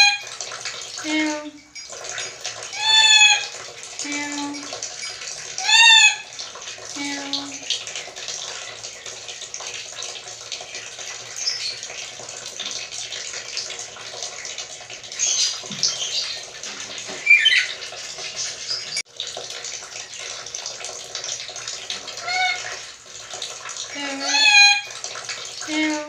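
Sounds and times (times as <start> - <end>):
parrot short high calls: 17.2 - 17.8, 22.2 - 22.7.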